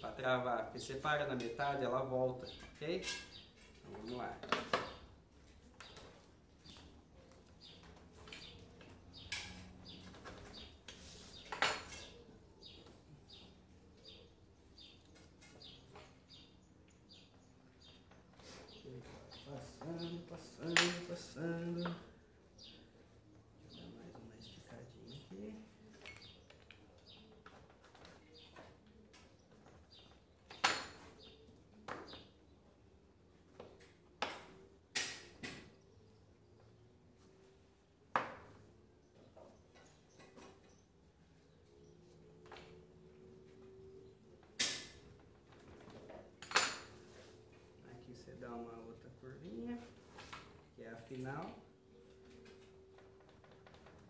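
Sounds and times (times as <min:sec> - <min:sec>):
bird chirping: 0:00.0 - 0:32.9.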